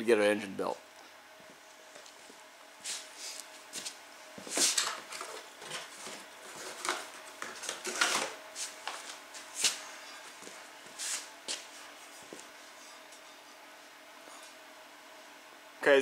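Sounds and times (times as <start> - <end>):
cardboard packaging rustling: 4.5 - 9.2.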